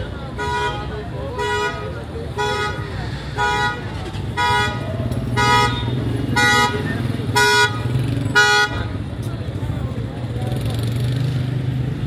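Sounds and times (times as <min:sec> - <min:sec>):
street traffic rumble: 0:00.0 - 0:12.0
car horn beeps: 0:00.4 - 0:09.0.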